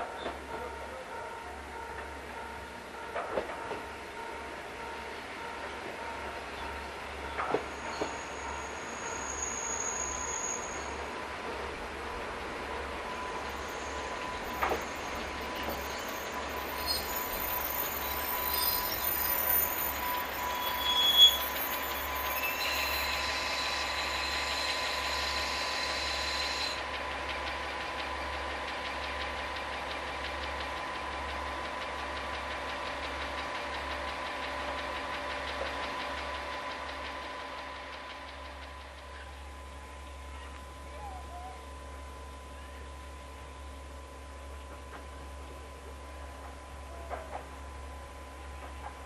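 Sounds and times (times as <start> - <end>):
train brake squeal and hiss: 7.3 - 11.2, 13.0 - 27.0.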